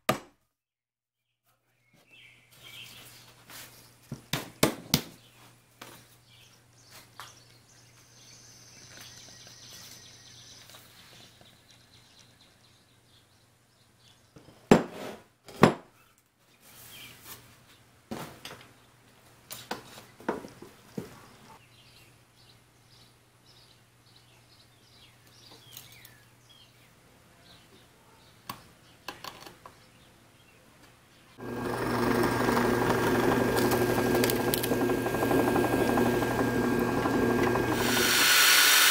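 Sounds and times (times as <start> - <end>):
drill press boring wood: 31.4 - 38.9.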